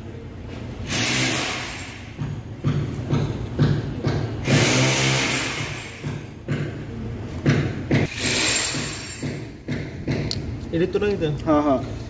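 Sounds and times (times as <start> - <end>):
machine noise with low hum: 0.0 - 12.0
knocks and thumps of light fitting: 2.1 - 4.4, 6.0 - 8.1, 8.8 - 12.0.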